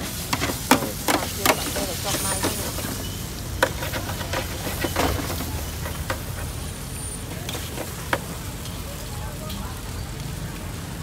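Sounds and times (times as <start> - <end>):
faint voices: 3.6 - 11.0.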